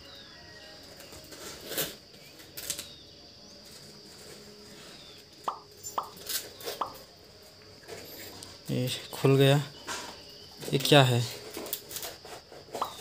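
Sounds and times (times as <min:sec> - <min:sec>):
tape tearing squeaks: 0:01.0 - 0:02.9.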